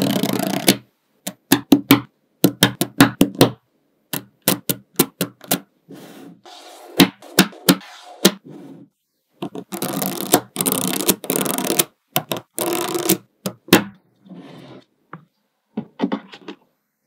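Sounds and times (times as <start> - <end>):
balls rattling and crackling: 9.4 - 14.2.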